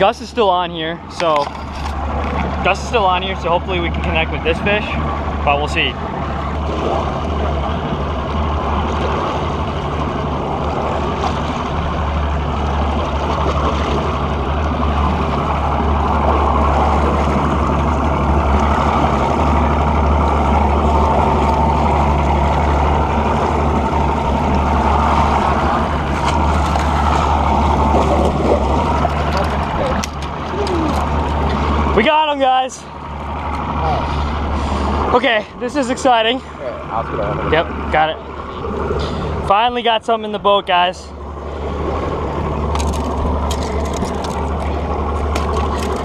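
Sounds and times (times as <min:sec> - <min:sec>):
outboard motor droning: 0:00.0 - 0:46.0
water rushing and churning: 0:00.0 - 0:46.0.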